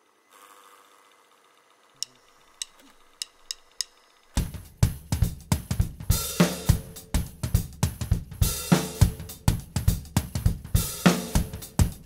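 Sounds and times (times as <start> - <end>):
drum kit groove: 3.5 - 12.0.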